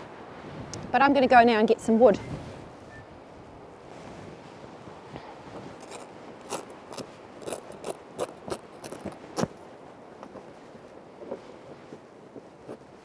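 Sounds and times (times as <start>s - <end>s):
faint wind hiss: 0.0s - 13.0s
camping gear clicks and rustles: 5.0s - 13.0s.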